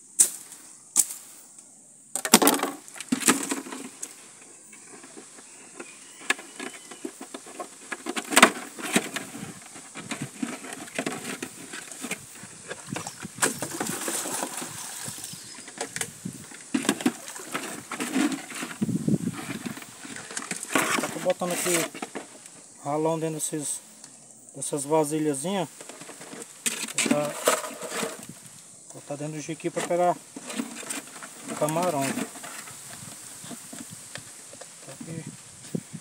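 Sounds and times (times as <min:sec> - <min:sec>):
plastic jug rattling: 0:02.2 - 0:04.1, 0:04.9 - 0:22.4, 0:25.8 - 0:28.3, 0:29.4 - 0:35.2.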